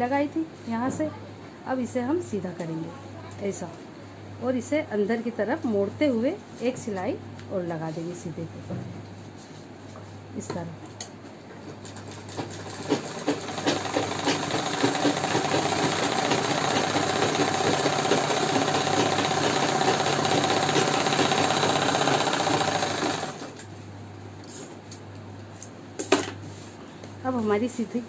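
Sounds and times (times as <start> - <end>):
sewing machine stitching: 12.0 - 23.6.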